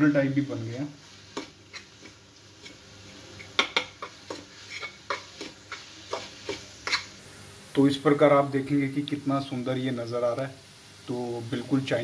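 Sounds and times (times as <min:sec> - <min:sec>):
ladle clinking and scraping a pan: 0:03.4 - 0:07.1.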